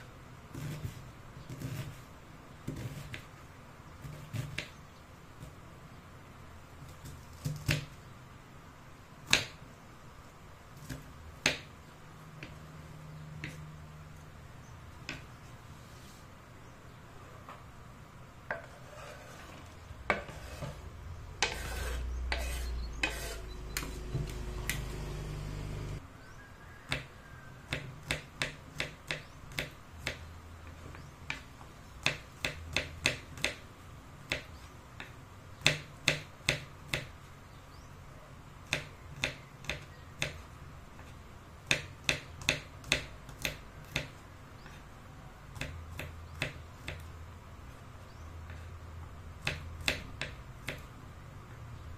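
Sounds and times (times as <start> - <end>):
onion scraped off board: 0.5 - 2.0, 2.7 - 3.2, 18.6 - 24.9
low hum: 22.0 - 26.0
knife chopping on wooden board: 26.9 - 27.1, 27.7 - 30.2, 31.3 - 33.6, 34.3 - 37.1, 41.7 - 44.2, 49.4 - 50.9.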